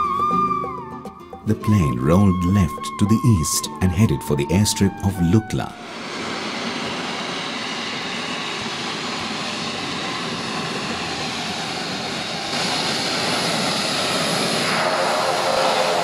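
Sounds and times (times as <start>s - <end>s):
turboprop aircraft engines droning: 0.0s - 16.0s.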